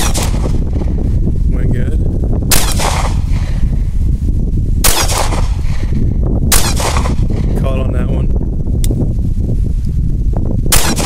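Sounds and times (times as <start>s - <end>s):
pistol shots: 0.0s - 0.6s, 2.5s - 3.6s, 4.8s - 5.9s, 6.5s - 7.4s, 10.7s - 11.0s
steady low rumble: 0.0s - 11.0s.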